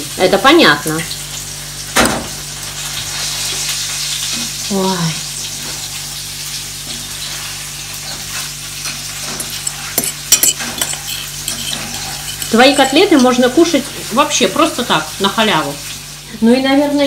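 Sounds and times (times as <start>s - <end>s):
food sizzling in a pan: 0.0s - 9.8s, 12.6s - 17.0s
metal fork clinking on plate: 9.3s - 13.4s.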